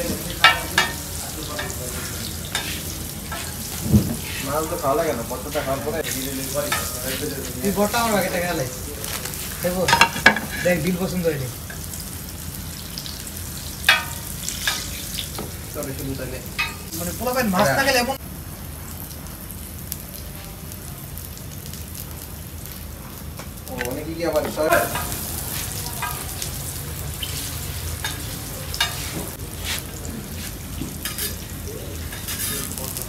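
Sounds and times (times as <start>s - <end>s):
voices: 0.0s - 11.6s, 23.7s - 33.0s
hot oil sizzling: 0.0s - 33.0s.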